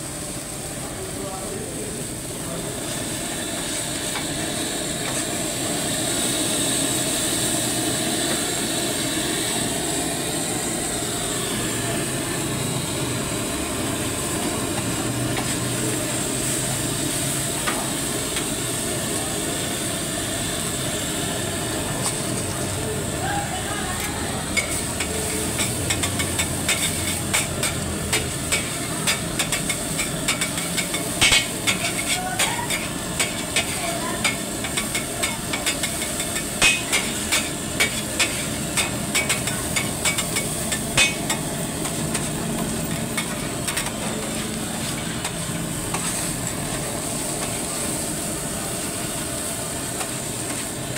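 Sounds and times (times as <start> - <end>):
frying sizzle: 0.0 - 50.9
metal spatula clacking on griddle: 24.0 - 42.3.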